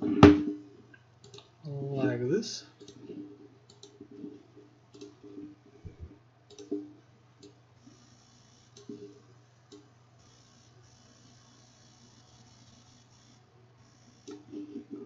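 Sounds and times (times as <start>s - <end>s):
low electrical hum: 0.0s - 15.0s
faint computer mouse clicks: 1.2s - 1.5s, 2.8s - 3.0s, 3.7s - 4.0s, 4.9s - 5.2s, 6.5s - 6.8s.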